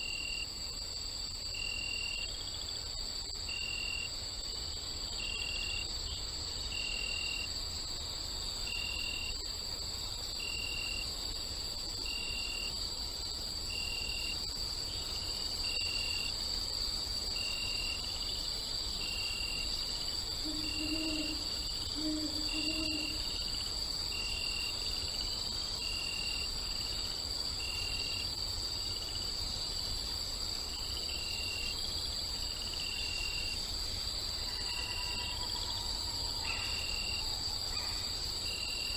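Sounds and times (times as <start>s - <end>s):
crickets trilling: 0.0s - 38.9s
short insect chirp: 0.0s - 38.9s
owl hooting: 20.4s - 23.3s.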